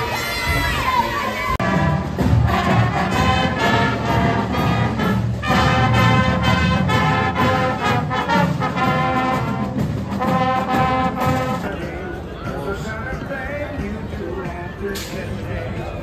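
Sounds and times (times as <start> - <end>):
brass instruments playing a tune: 0.9 - 11.9.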